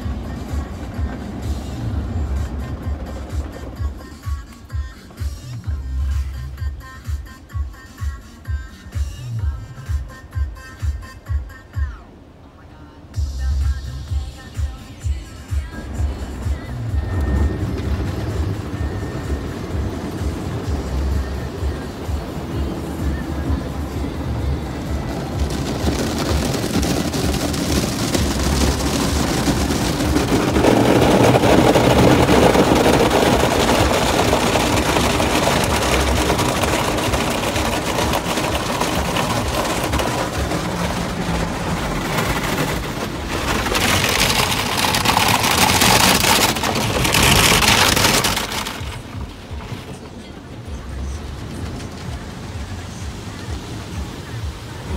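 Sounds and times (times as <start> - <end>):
car wash brushes scrubbing: 0.0 - 7.2, 13.4 - 54.9
water spraying on glass: 13.5 - 54.9.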